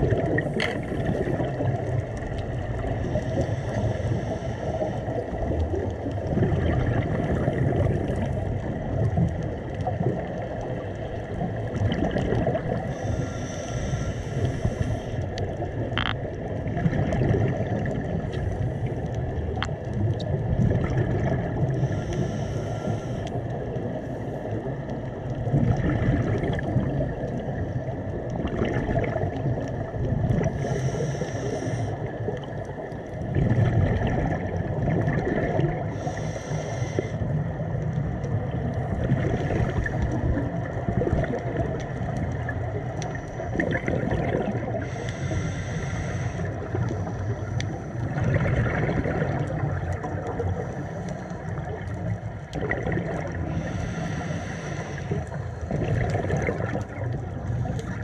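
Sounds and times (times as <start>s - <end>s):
exhaled bubbles gurgling underwater: 0.0s - 58.0s
regulator inhalation hiss: 3.2s - 5.0s, 12.9s - 15.2s, 21.8s - 23.3s, 30.5s - 32.0s, 35.9s - 37.2s, 44.8s - 48.0s, 53.5s - 55.6s.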